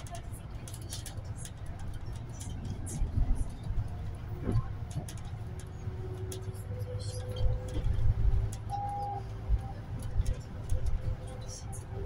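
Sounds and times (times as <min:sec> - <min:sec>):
bus engine and road rumble: 0:00.0 - 0:12.0
short beep: 0:08.7 - 0:09.2.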